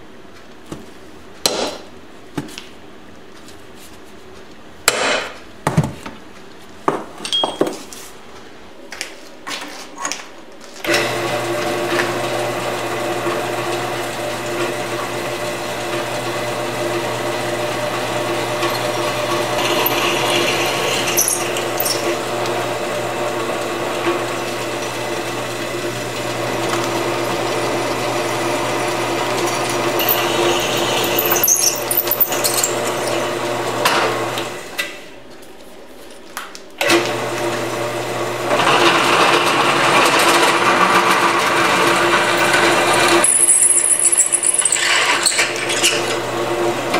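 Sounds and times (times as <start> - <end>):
drill press motor hum: 10.9 - 34.8, 36.9 - 46.9
drill bit grinding into steel: 16.1 - 22.8, 24.0 - 33.8, 38.6 - 46.2.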